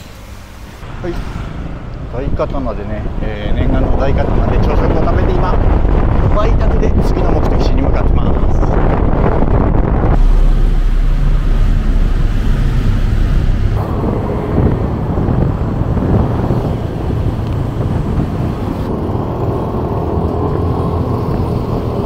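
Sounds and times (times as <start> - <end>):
road and wind noise: 0.0 - 22.0
motorcycle engine rumble: 8.5 - 22.0.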